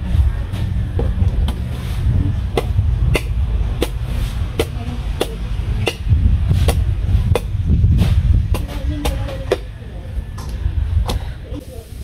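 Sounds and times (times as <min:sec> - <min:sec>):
low rumble: 0:00.0 - 0:11.8
machete chopping coconut husk: 0:02.5 - 0:09.7.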